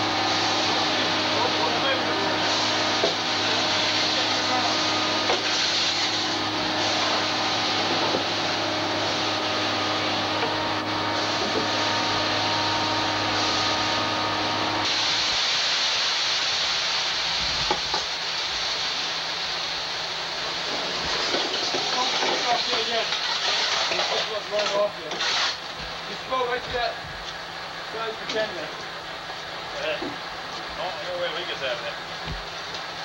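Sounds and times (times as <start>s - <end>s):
motor humming: 0.0s - 15.2s
constant hiss: 14.8s - 33.0s.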